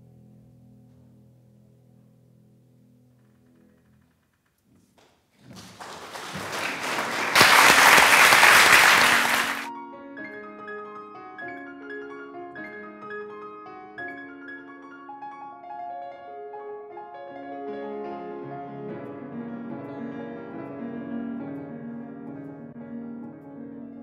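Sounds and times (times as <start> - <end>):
audience applauding: 5.4 - 9.7
solo piano music: 9.7 - 24.0.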